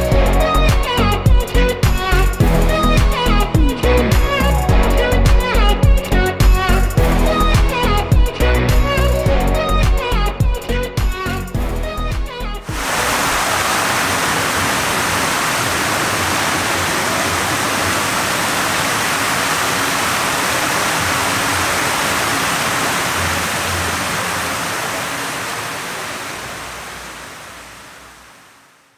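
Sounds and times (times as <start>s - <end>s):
fountain water splashing: 12.7s - 28.8s.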